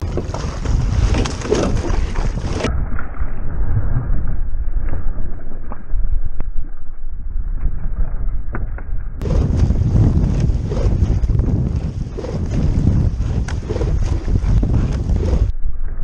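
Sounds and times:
wind buffeting microphone: 0:00.0 - 0:04.5, 0:09.2 - 0:15.6
water noise: 0:00.0 - 0:08.1, 0:09.2 - 0:16.0.

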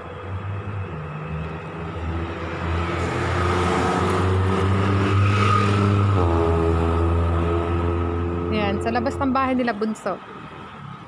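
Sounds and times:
car driving past: 0:00.6 - 0:09.0.

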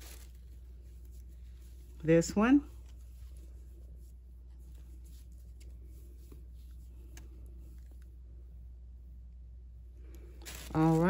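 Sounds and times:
lace rustling: 0:00.0 - 0:08.2, 0:10.4 - 0:11.0
steady low hum: 0:00.0 - 0:11.0.

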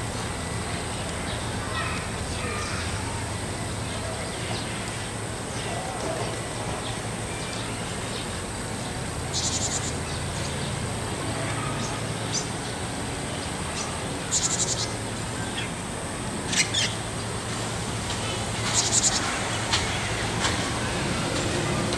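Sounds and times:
bird buzzy rattling calls: 0:18.2 - 0:20.6.

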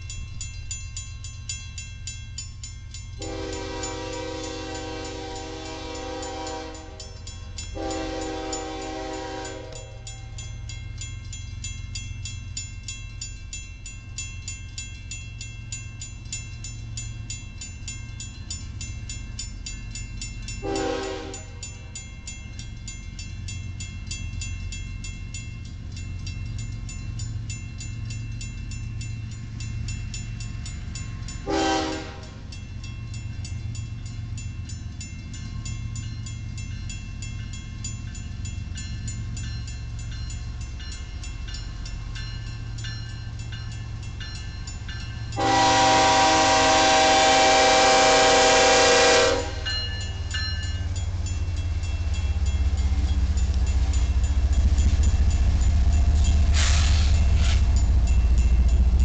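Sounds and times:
crossing bell ringing: 0:00.0 - 0:59.0
diesel locomotive engine rumble: 0:00.0 - 0:59.0
train air horn blasts: 0:03.2 - 0:07.1, 0:07.8 - 0:10.1, 0:20.6 - 0:21.6, 0:31.4 - 0:32.4, 0:45.4 - 0:49.8.

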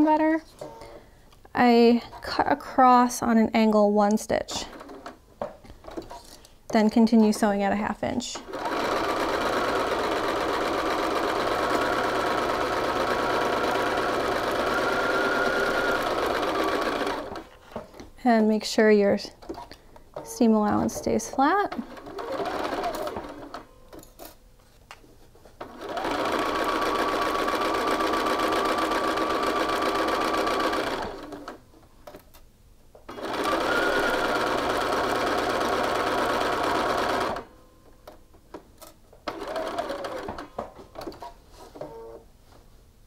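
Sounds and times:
sewing machine stitching: 0:04.6 - 0:05.2, 0:08.4 - 0:17.7, 0:19.4 - 0:24.1, 0:25.6 - 0:32.2, 0:33.1 - 0:37.5, 0:39.2 - 0:42.1.

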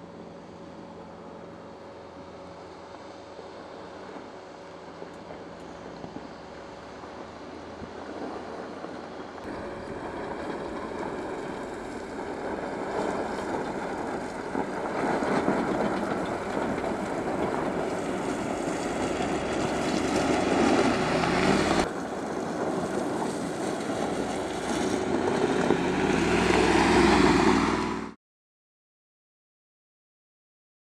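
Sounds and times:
suv engine running: 0:00.0 - 0:28.2
tyres crunching over gravel: 0:05.0 - 0:28.0.

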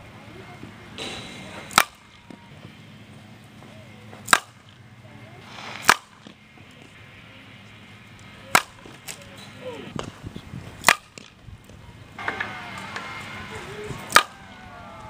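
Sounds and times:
bat hitting softballs: 0:00.9 - 0:02.8, 0:03.5 - 0:04.9, 0:05.5 - 0:07.0, 0:07.8 - 0:15.0.

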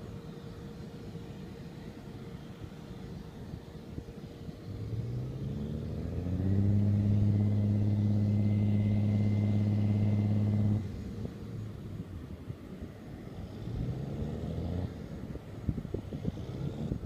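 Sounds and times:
fire truck engine revving: 0:04.7 - 0:12.0.

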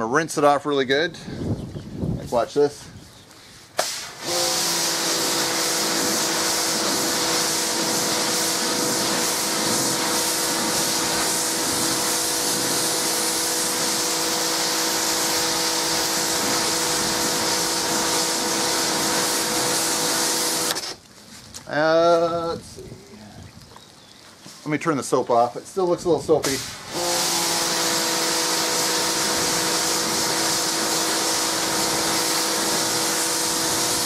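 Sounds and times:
water jet hissing on metal: 0:03.8 - 0:20.9, 0:26.4 - 0:34.0
pressure washer motor hum: 0:03.8 - 0:21.0, 0:26.4 - 0:34.0.

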